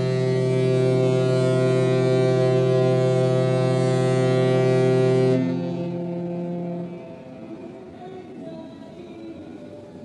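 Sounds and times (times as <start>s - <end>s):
ship's horn deep blast: 0.0s - 7.8s.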